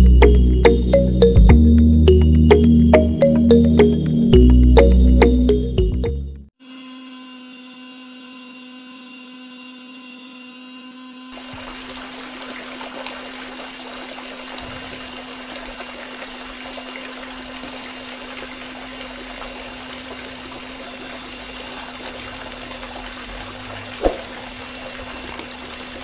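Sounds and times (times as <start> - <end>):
small water pump humming: 7.0 - 26.0
water pouring and splashing: 11.4 - 26.0
sharp knock: 24.0 - 24.3.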